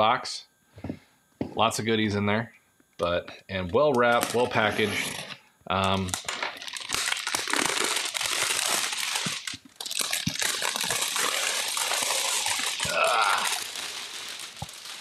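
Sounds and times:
plastic shrink wrap crinkling: 4.0 - 15.0.

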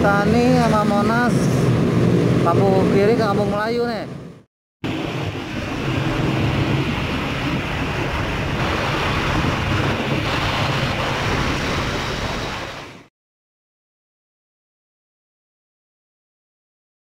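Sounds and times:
wind rushing over microphone: 0.0 - 13.1.

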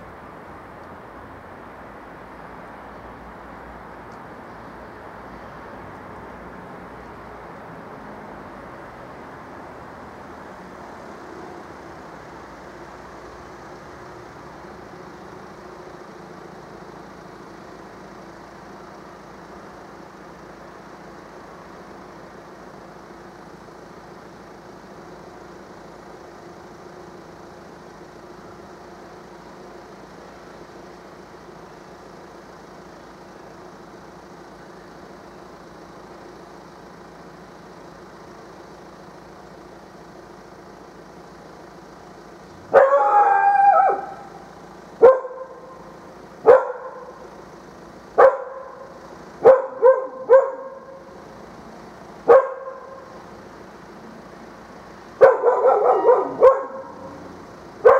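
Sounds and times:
street traffic hum: 0.0 - 57.9
dog barking: 42.7 - 44.3, 45.0 - 45.7, 46.4 - 47.2, 48.2 - 48.8, 49.4 - 51.0, 52.3 - 53.0, 55.2 - 57.2.

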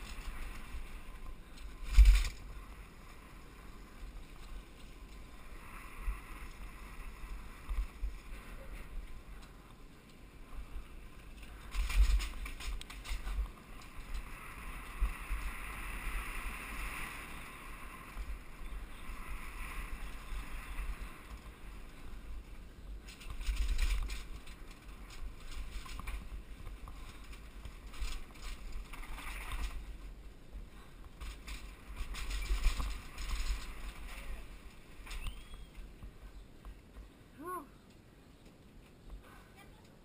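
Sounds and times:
wind buffeting camera: 0.0 - 37.3
bike rumbling and rattling over cobblestones: 10.5 - 15.4, 20.2 - 36.2.

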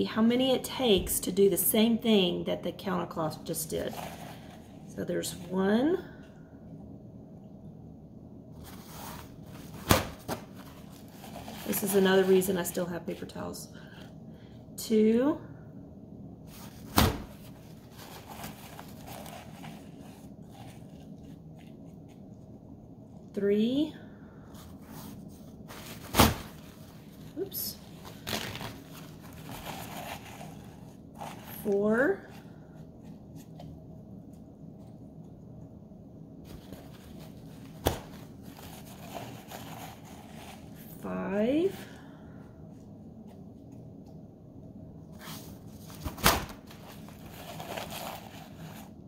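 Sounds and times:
paper towels rustling: 8.6 - 13.4, 16.4 - 22.5, 24.6 - 33.7, 36.4 - 41.0, 45.1 - 49.0.

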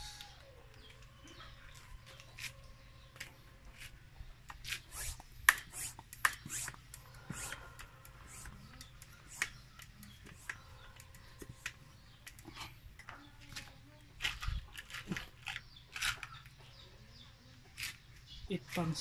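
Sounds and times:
sharp clicks: 4.4 - 14.5.

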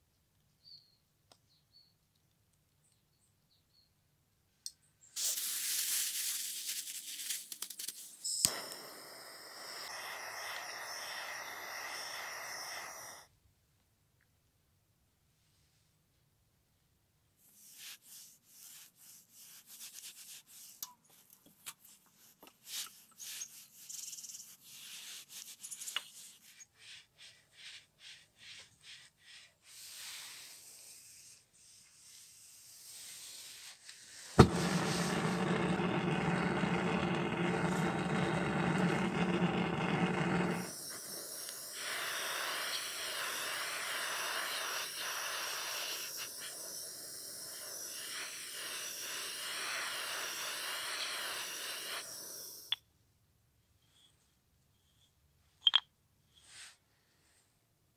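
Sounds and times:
steel wool rubbing in metal bowl: 34.4 - 52.6.

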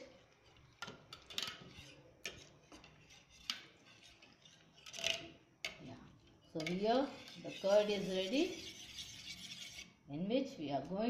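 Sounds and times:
metal whisk scraping steel pot: 1.1 - 5.4, 6.5 - 10.0.

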